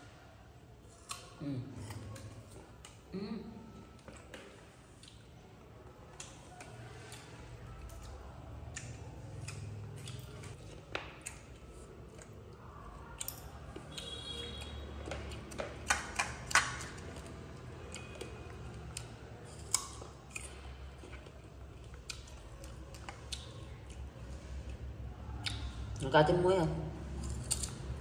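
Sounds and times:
monkey crunching fruit: 6.0 - 24.8.

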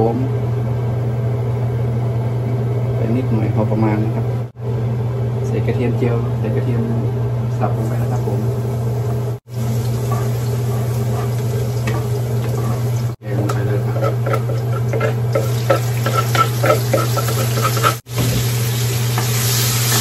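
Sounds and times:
steady low hum: 0.0 - 20.0
garlic sizzling in oil: 7.8 - 20.0
spatula stirring in wok: 9.5 - 20.0.

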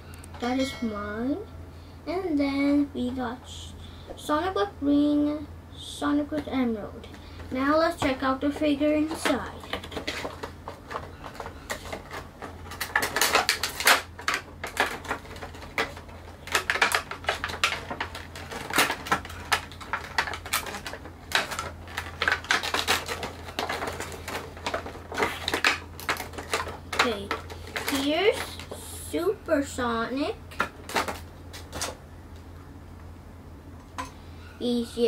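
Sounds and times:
packaging crinkling and scraping: 7.3 - 28.9, 30.5 - 32.0.

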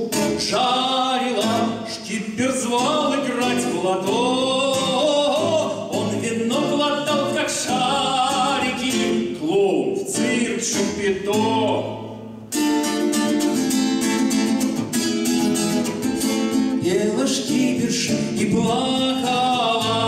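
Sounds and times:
man singing: 0.0 - 12.2, 16.7 - 20.0
acoustic guitar strumming: 0.0 - 20.0.

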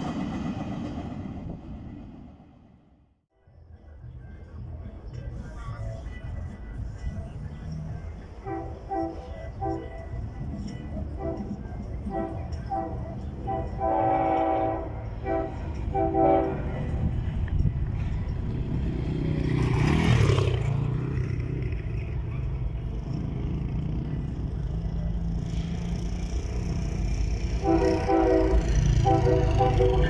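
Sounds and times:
locomotive rumble: 0.0 - 30.0
locomotive horn blasts: 8.4 - 17.2, 27.4 - 30.0.

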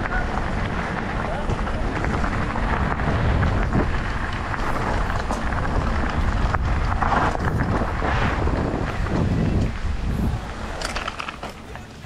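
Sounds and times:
wind rushing over microphone: 0.0 - 11.4
bike rattling over rough ground: 0.0 - 12.0.

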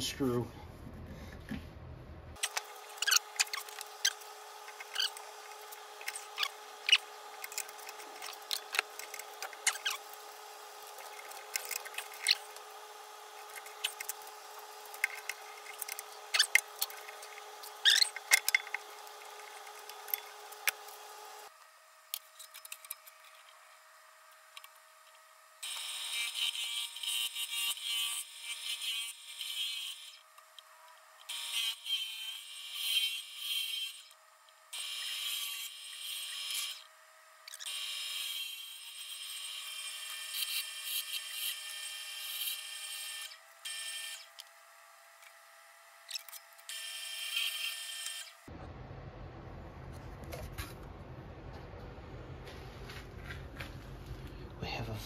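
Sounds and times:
wood lathe spinning: 2.4 - 21.5
tools clicking and knocking on wood: 14.9 - 20.9.

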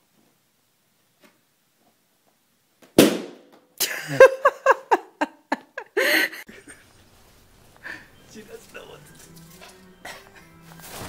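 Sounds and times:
balloon bursting: 3.0 - 3.5
person laughing: 3.8 - 7.1, 10.0 - 10.6.

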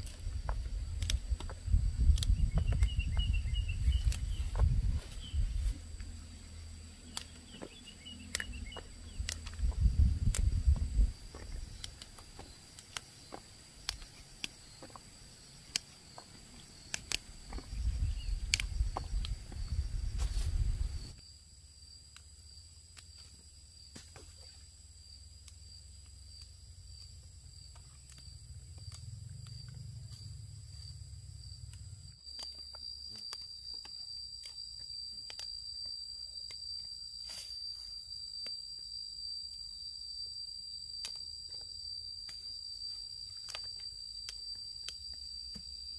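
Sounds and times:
insects trilling: 0.0 - 45.9
scattered clicks: 0.9 - 3.0, 8.3 - 9.6, 15.6 - 19.4
low rumble: 8.6 - 11.7, 28.4 - 32.1.

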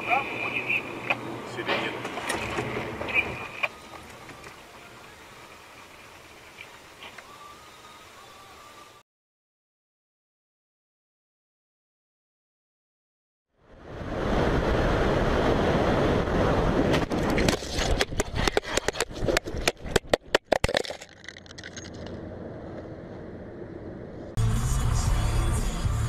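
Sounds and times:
camera tumbling knocks and scrapes: 16.9 - 22.9.

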